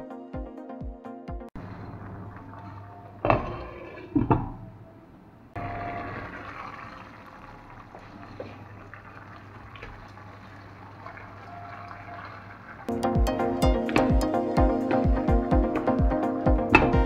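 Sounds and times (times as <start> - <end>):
broth simmering in a pan: 5.6 - 12.9.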